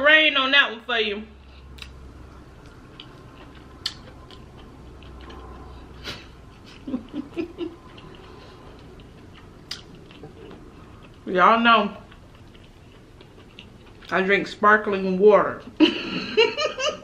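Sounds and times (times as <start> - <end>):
chewing food: 1.5 - 14.6.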